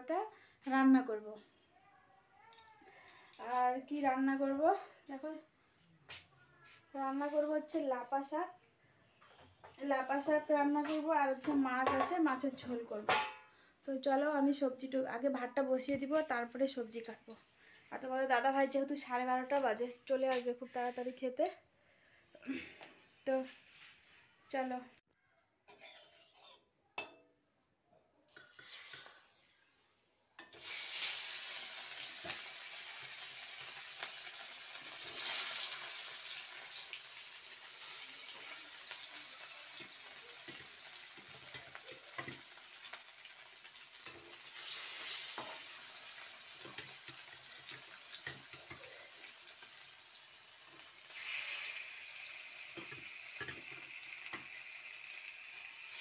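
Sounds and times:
fish frying in hot oil: 0:30.5 - 0:56.0.

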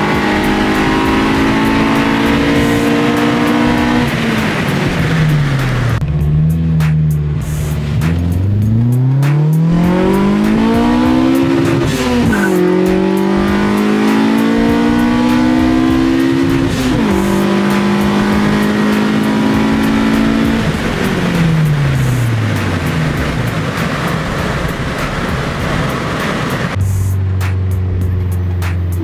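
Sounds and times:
car engine revving at full throttle: 0:00.0 - 0:29.0.

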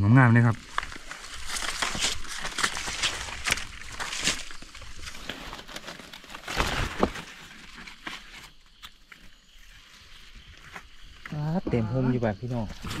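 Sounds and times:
undergrowth crackling: 0:00.1 - 0:13.0
footsteps on leaf litter: 0:00.5 - 0:09.3.

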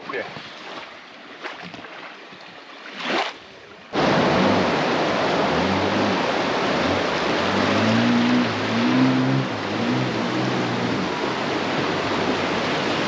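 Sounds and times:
soft water sounds: 0:00.0 - 0:13.0
water splash: 0:00.0 - 0:13.0
low droning tone: 0:04.0 - 0:12.2
river rapids rushing: 0:04.0 - 0:13.0.

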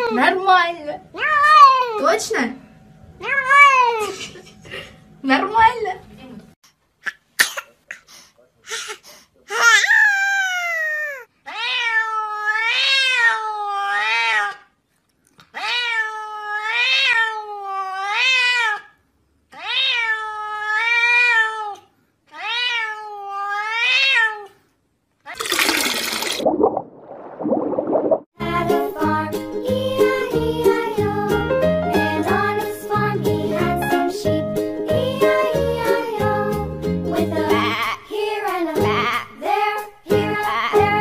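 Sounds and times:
cat meowing: 0:09.6 - 0:14.6, 0:15.6 - 0:18.9, 0:19.5 - 0:24.6.

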